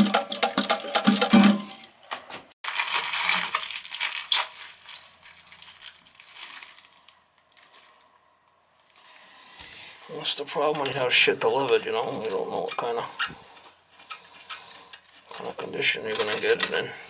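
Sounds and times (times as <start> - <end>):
crackling crinkling rustle: 2.6 - 9.1, 10.2 - 17.0.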